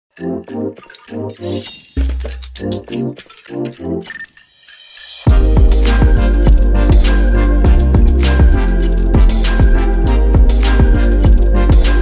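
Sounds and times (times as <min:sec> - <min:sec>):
electronic music with kick drum: 0:04.5 - 0:12.0.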